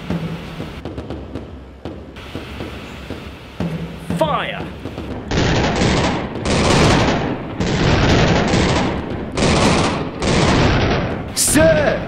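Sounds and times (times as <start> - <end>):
cannon blasts: 3.6 - 12.0.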